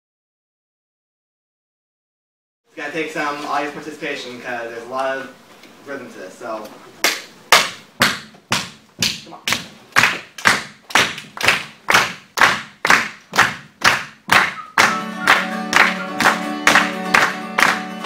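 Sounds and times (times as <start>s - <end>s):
steady claps: 7.0s - 18.0s
acoustic guitar strumming: 14.6s - 18.0s.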